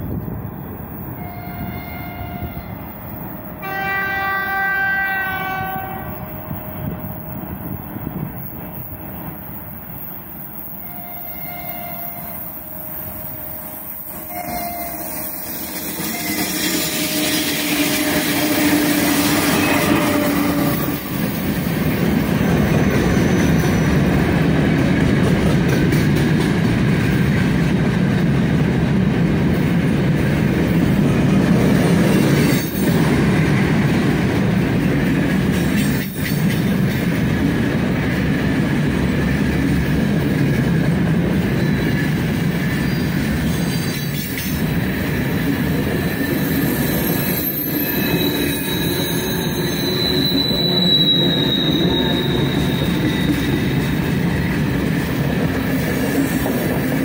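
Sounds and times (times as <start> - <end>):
train wheels on rails: 0.0 - 57.0
locomotive horn: 1.2 - 2.9, 3.6 - 6.9, 10.8 - 21.2.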